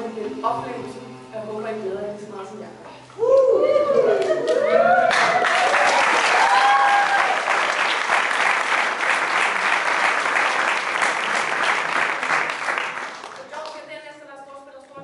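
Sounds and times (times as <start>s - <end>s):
audience applause: 4.0s - 13.8s.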